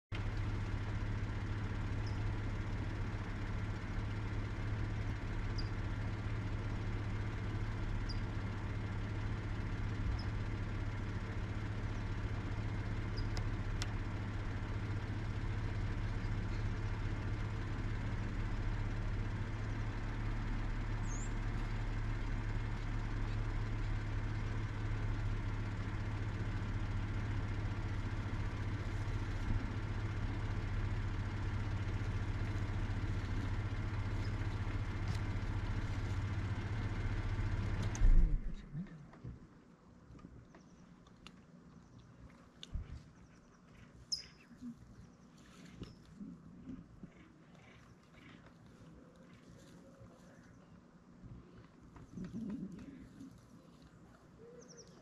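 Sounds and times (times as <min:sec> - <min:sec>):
low engine hum: 0:00.1 - 0:55.0
faint high chirps: 0:21.0 - 0:21.4, 0:44.1 - 0:44.8.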